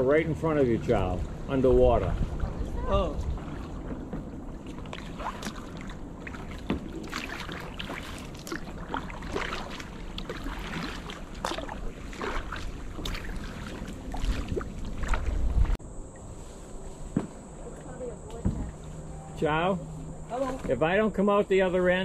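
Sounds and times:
low steady rumble: 0.0s - 22.0s
paddle splashing in water: 2.0s - 18.9s.

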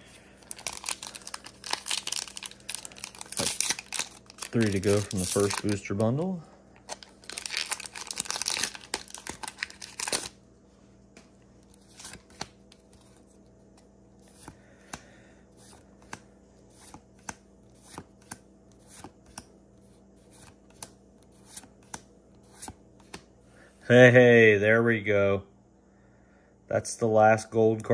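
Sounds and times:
foil wrapper crinkling and tearing: 0.4s - 6.2s, 6.8s - 10.4s.

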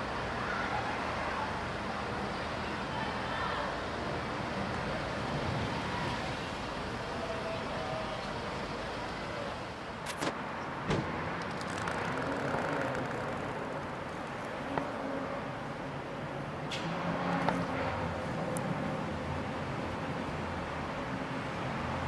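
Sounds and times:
distant road traffic: 0.0s - 22.0s
sharp clicks: 10.1s - 10.4s, 11.0s - 14.9s.

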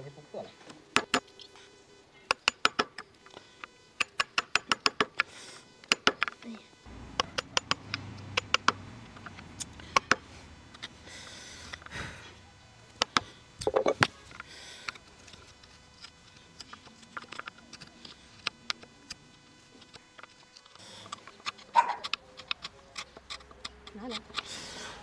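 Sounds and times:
chisel paring wood: 7.2s - 8.8s
hammer tapping chisel: 7.2s - 8.8s.

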